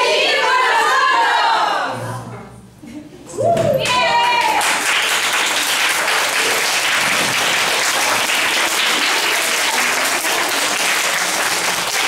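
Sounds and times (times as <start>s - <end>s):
audience applauding: 3.8s - 12.0s.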